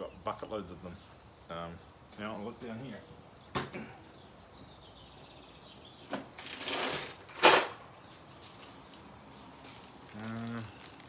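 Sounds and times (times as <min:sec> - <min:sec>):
rustling: 0:08.0 - 0:11.0.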